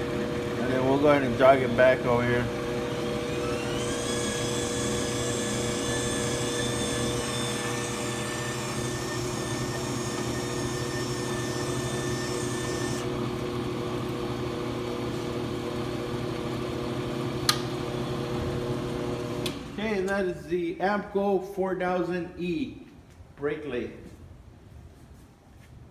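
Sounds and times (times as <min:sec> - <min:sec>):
feed motor whining: 0:00.0 - 0:19.8
lathe motor humming: 0:00.0 - 0:19.8.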